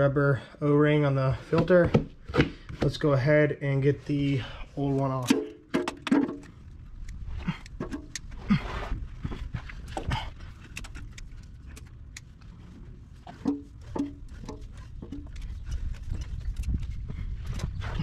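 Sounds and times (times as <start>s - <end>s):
hands clicking and knocking on metal: 7.5s - 8.4s, 13.3s - 16.8s.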